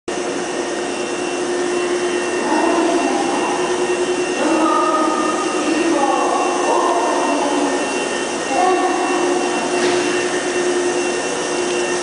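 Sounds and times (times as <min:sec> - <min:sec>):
electric train whirring drone: 0:00.1 - 0:12.0.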